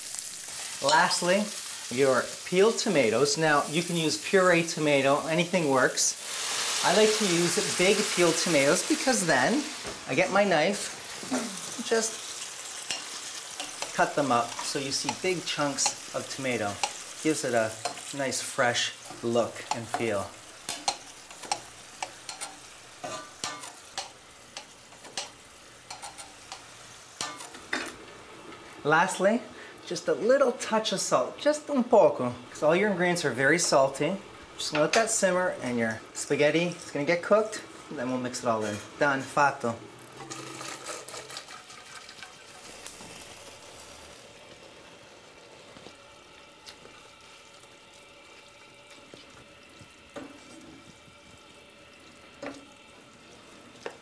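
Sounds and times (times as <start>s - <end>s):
spaghetti stirring in pan: 0.0s - 27.8s, 40.1s - 54.0s
sauce sizzling: 0.0s - 54.0s
water pouring and dripping: 40.2s - 44.0s.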